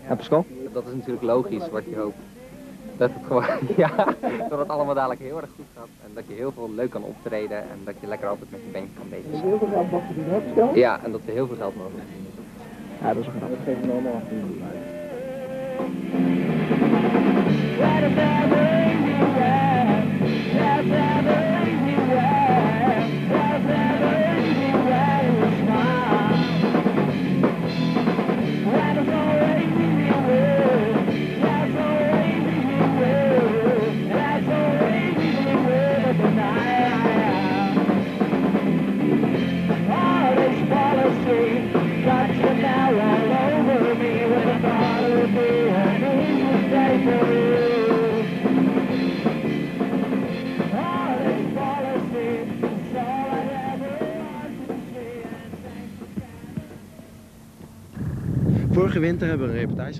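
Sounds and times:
man singing: 0:07.2 - 0:16.0, 0:17.7 - 0:26.9, 0:28.6 - 0:38.0, 0:39.8 - 0:48.5, 0:50.6 - 0:57.0
drum kit: 0:12.4 - 0:56.9
punk rock band playing: 0:13.0 - 0:56.4.

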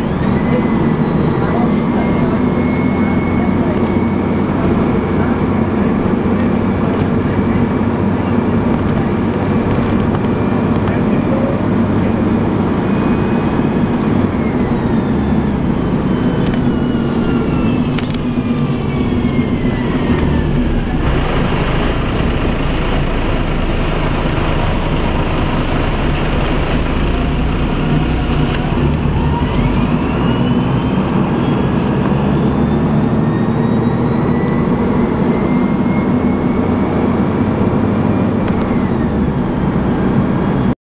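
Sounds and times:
bus engine drone: 0:00.0 - 0:40.8
gearbox whine: 0:12.8 - 0:31.6.

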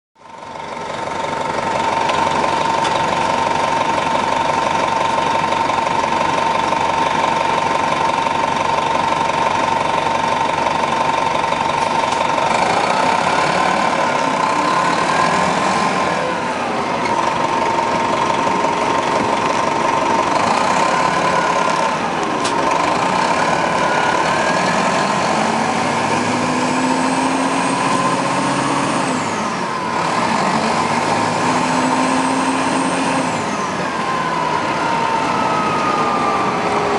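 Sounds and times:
constant whine: 0:00.2 - 0:26.3
diesel bus engine idling: 0:00.2 - 0:36.9
other engines rising and falling: 0:00.3 - 0:36.9.

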